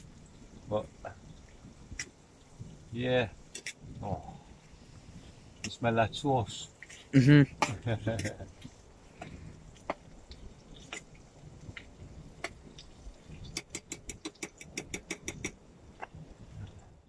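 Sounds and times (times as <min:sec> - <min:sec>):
fork clicking against metal pan: 0:13.5 - 0:15.6.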